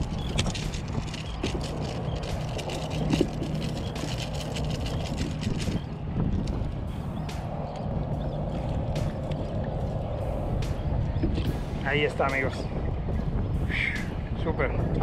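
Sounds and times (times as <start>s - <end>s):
water splashing around kayak: 0.0s - 14.4s
wind buffeting microphone: 0.0s - 15.0s.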